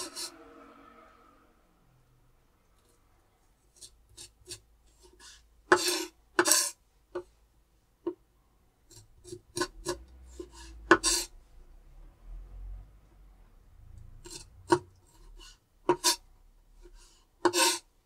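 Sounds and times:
kitchen scrapes: 0.0s - 0.7s, 3.7s - 6.8s, 8.9s - 11.4s, 14.2s - 17.9s.

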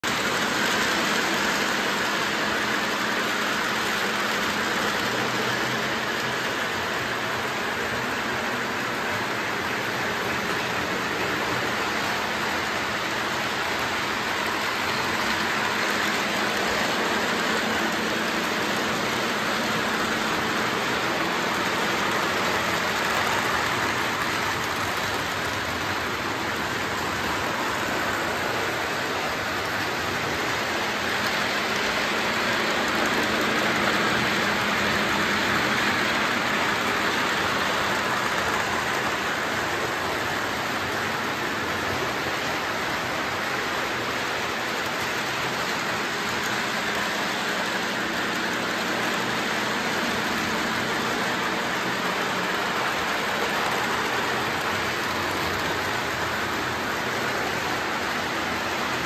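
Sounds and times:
model trains rolling whir: 0.0s - 59.0s.

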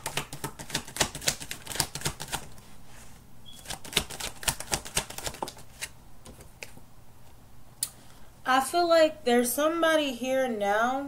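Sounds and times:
cards being shuffled: 0.0s - 2.7s, 3.5s - 6.8s.

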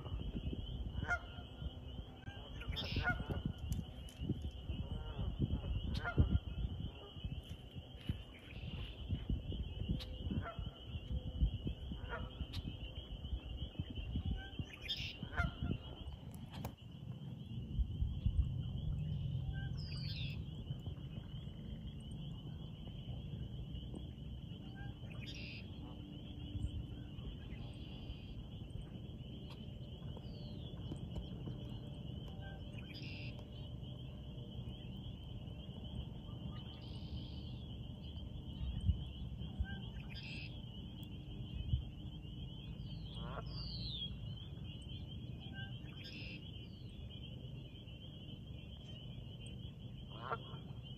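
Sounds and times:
low wind rumble: 0.0s - 50.9s
geese honking: 0.1s - 4.2s, 4.8s - 7.4s, 10.0s - 16.2s, 24.6s - 33.5s, 43.1s - 43.6s, 50.0s - 50.9s.

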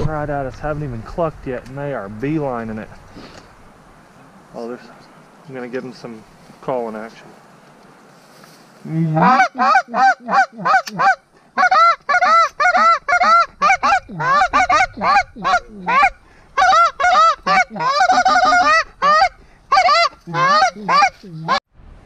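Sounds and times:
goose call honks and clucks: 9.0s - 21.6s.

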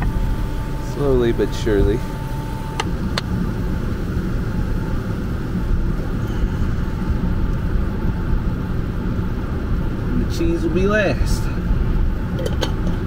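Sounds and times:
low rumbling noise: 0.0s - 13.0s.

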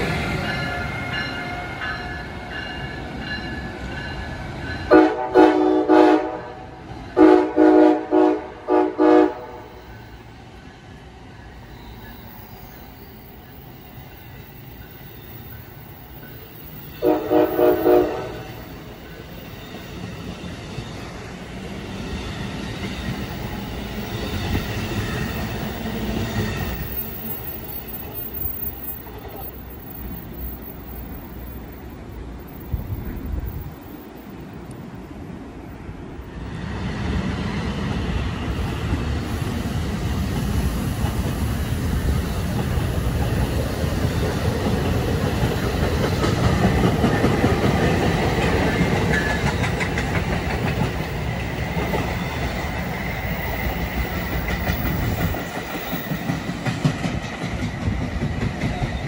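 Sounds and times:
train rumbling past: 0.0s - 59.0s
train running noise: 0.0s - 59.0s
train air horn blasts: 4.9s - 9.8s, 17.0s - 18.6s.

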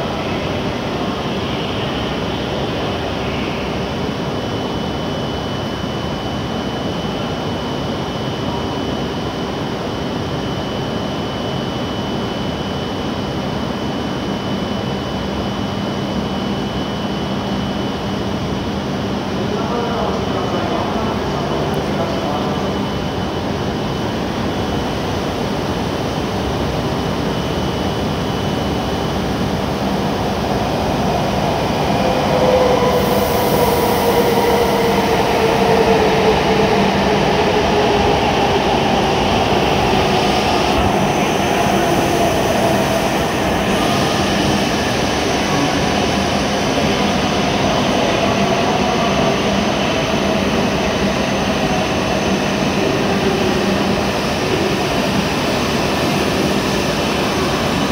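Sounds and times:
train braking to a stop: 27.0s - 57.9s.

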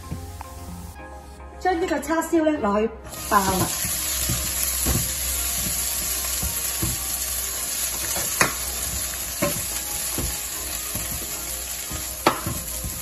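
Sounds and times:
meat sizzling in hot oil: 3.1s - 13.0s
spatula stirring: 3.1s - 13.0s
spatula knocking against pan: 8.1s - 13.0s.

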